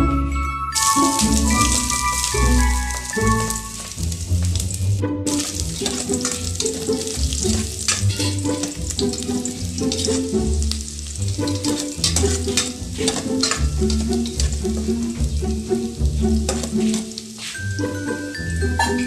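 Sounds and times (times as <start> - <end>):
waltz music: 0.0 - 4.1, 4.7 - 19.0
garlic sizzling in hot oil: 0.8 - 18.9
spatula scraping pot: 5.3 - 15.3, 16.2 - 17.7.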